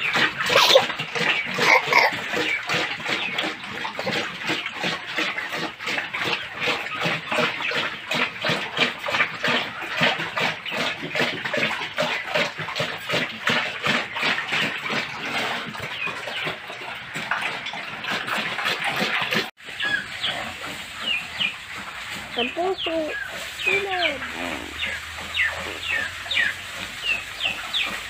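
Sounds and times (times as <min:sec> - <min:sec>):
pigs chomping and slurping: 0:00.0 - 0:28.0.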